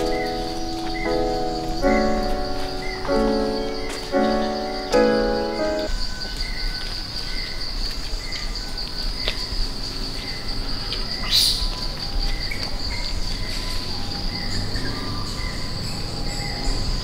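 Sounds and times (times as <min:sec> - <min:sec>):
bird chirps: 0:00.0 - 0:07.6
insects droning: 0:00.0 - 0:17.0.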